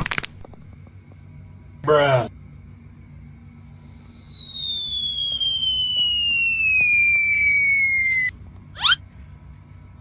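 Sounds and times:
cartoon falling whistle: 3.6 - 9.0.

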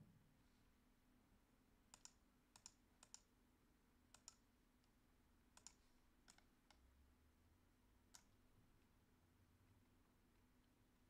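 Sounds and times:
computer mouse clicks: 1.9 - 3.3, 4.1 - 6.8, 8.1 - 8.4.

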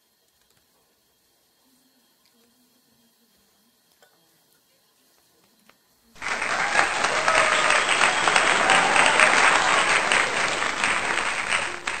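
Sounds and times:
crowd clapping: 6.2 - 12.0.

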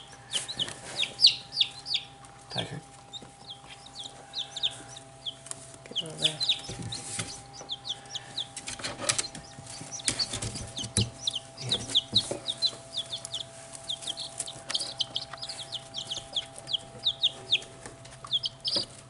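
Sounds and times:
chicks peeping: 0.0 - 19.0.

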